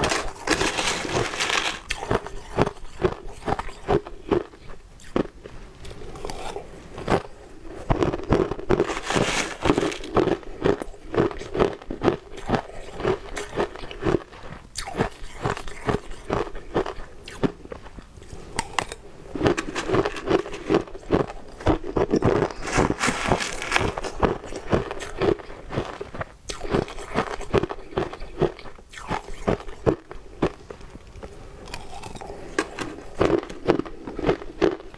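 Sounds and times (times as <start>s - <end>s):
metal spoon scraping plastic tub: 0.0s - 2.3s, 8.8s - 10.1s, 19.4s - 20.9s, 22.4s - 24.1s
crunching and chewing ice: 0.0s - 34.9s.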